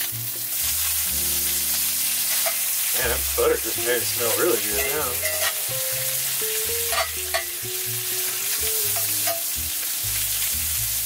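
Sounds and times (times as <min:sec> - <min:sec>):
meat sizzling in a skillet: 0:00.0 - 0:11.0
fork clicking against pan: 0:08.9 - 0:09.5.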